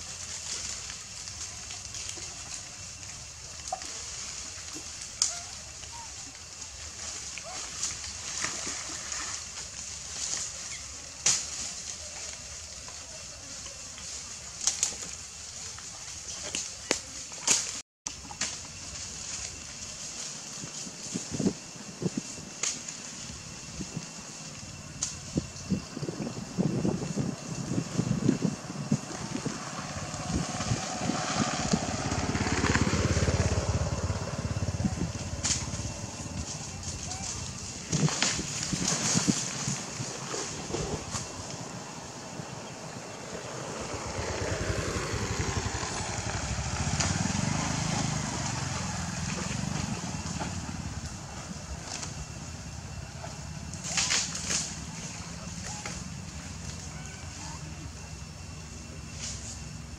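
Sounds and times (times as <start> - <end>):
vehicle engine passing: 27.6 - 36.9, 40.3 - 51.8.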